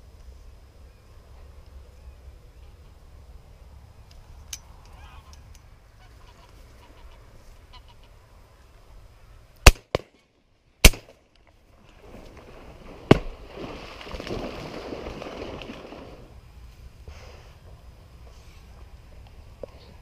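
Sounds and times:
geese honking: 6.0s - 8.2s
shotgun shots: 9.6s - 10.2s, 10.8s - 11.2s.

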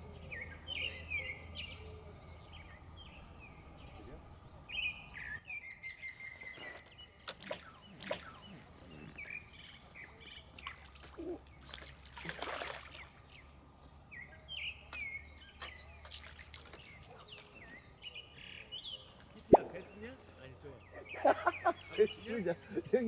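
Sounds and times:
small birds chirping: 0.0s - 23.0s
fish splashing at surface: 10.6s - 13.1s.

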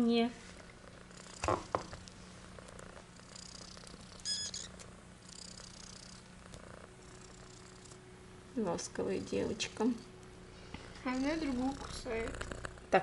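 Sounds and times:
cat purring: 0.4s - 13.0s
short high-pitched squeak: 4.2s - 4.7s.

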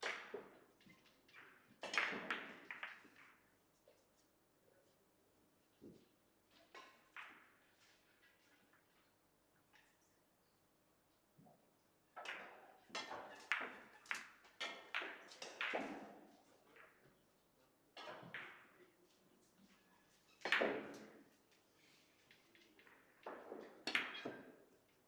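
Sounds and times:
billiard balls clacking: 1.6s - 3.4s, 12.4s - 16.1s.

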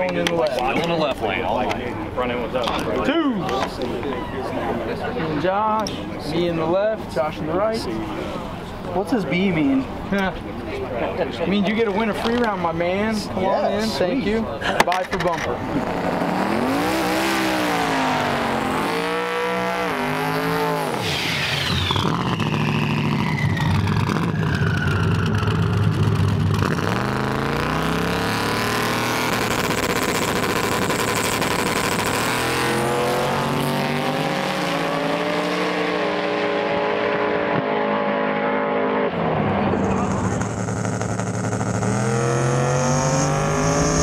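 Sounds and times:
drag racing engines revving: 15.4s - 44.0s
car accelerating away: 15.6s - 44.0s.

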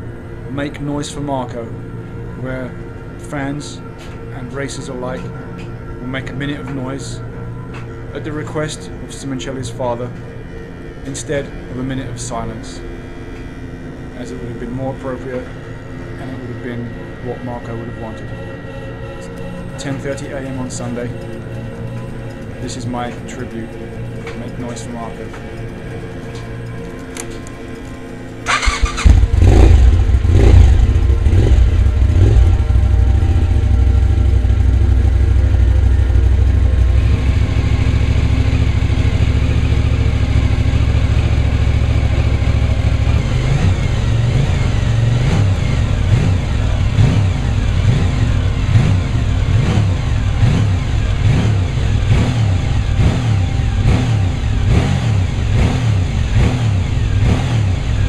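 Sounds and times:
motorcycle engine starting: 25.5s - 58.0s
motorcycle engine revving: 26.7s - 58.0s.

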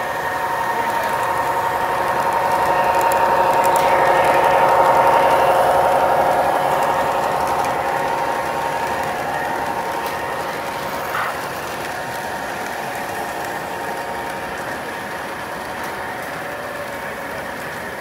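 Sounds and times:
model train motors whirring: 0.0s - 18.0s.

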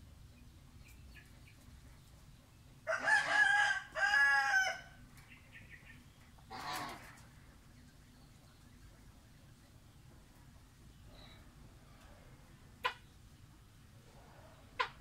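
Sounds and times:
rooster crowing: 2.9s - 5.0s.

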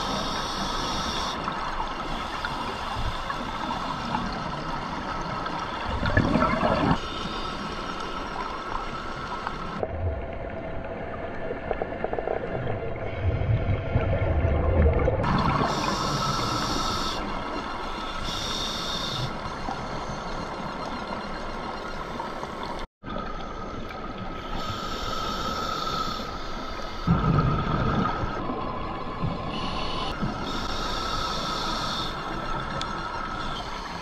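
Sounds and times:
regulator hissing inhalations: 0.0s - 1.4s, 15.6s - 17.3s, 18.0s - 19.3s, 24.4s - 27.1s, 29.5s - 32.3s
steady underwater hum: 0.0s - 34.0s
exhaled bubbles rumbling: 4.5s - 7.0s, 9.7s - 16.0s, 27.0s - 29.5s.

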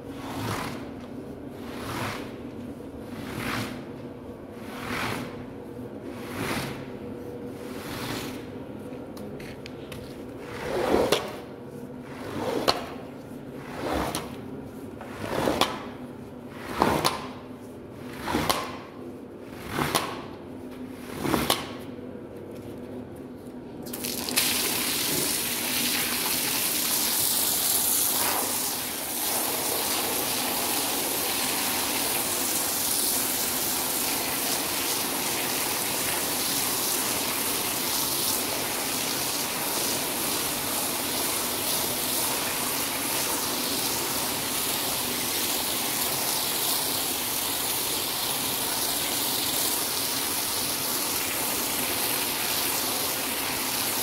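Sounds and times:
scrub brush swishing on rug: 0.2s - 0.8s, 1.6s - 2.4s, 3.0s - 4.0s, 4.6s - 5.5s, 6.1s - 6.9s, 12.1s - 15.6s
water spraying onto rug: 23.9s - 54.0s.

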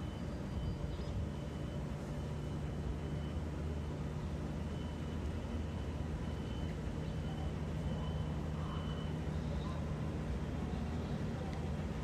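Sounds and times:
electric locomotive hum: 0.0s - 12.0s
faint high tone: 6.4s - 10.1s.

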